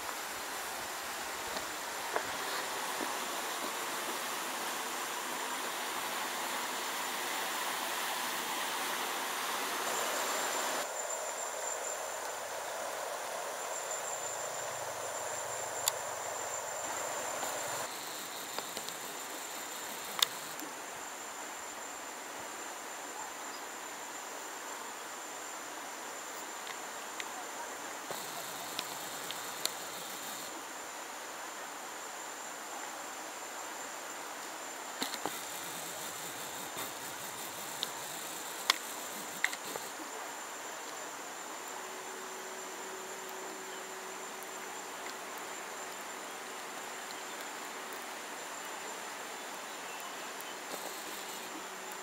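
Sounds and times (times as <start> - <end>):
river rushing in flood: 0.0 - 22.8
insect droning: 0.0 - 52.0.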